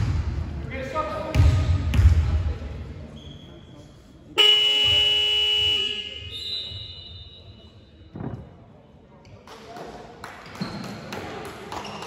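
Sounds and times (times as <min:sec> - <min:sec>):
game buzzer horn blast: 0:04.4 - 0:06.2.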